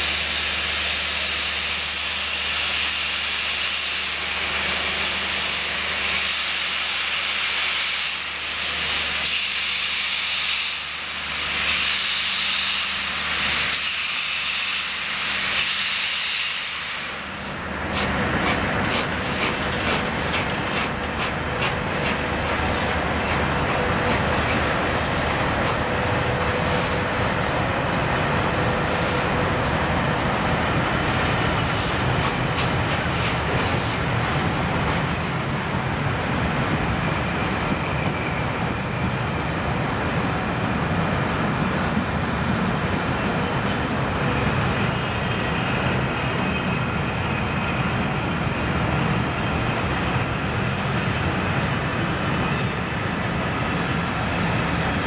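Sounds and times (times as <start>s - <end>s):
steam locomotive exhaust: 0.0s - 55.0s
coaches rumbling on rails: 16.7s - 55.0s.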